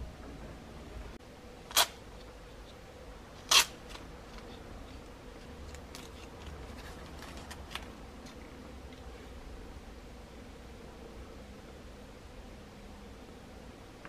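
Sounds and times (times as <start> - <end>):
faint steady hum: 0.0 - 14.0
masking tape pulled off: 3.4 - 4.5.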